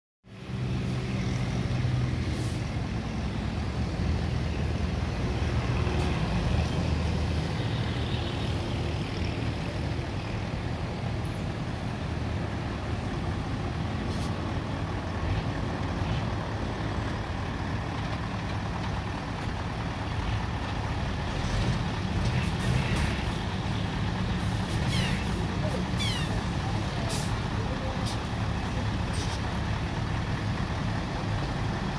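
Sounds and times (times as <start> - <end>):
diesel truck engine idling: 8.8 - 31.9.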